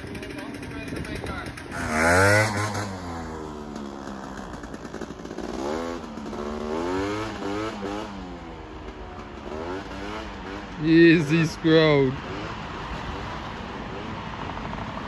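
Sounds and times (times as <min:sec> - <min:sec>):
scooter engine revving: 0:00.0 - 0:13.3.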